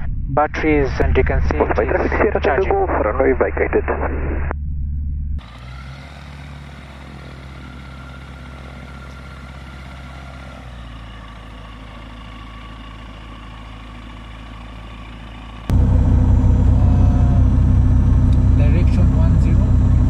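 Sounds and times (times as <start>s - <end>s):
light aircraft engine and propeller: 5.4s - 20.0s.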